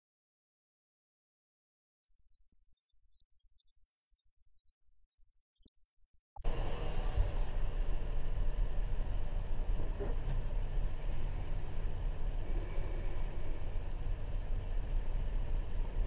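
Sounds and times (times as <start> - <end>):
car driving in a tunnel: 6.4 - 16.0.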